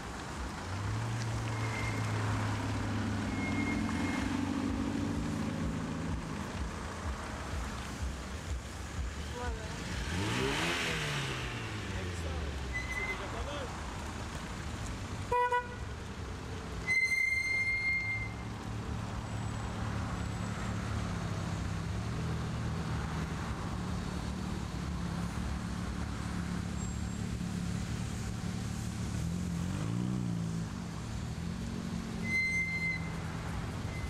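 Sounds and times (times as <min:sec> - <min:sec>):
car passing by: 0:00.0 - 0:15.4
car engines rumbling past: 0:00.0 - 0:34.0
short high beep: 0:03.3 - 0:04.3, 0:12.7 - 0:13.3.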